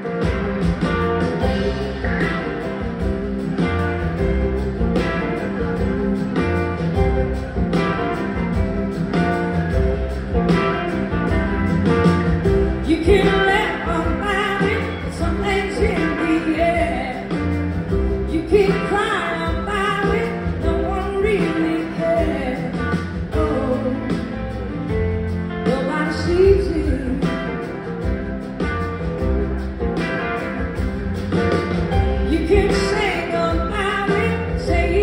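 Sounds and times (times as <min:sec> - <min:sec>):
live rock band playing: 0:00.0 - 0:35.0
person singing: 0:12.8 - 0:17.6.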